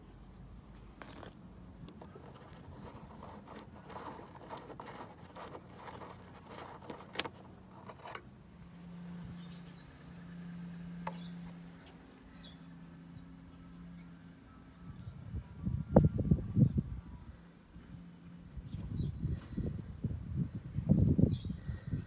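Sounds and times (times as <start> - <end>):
screw scraping in plastic panel: 1.0 - 8.3.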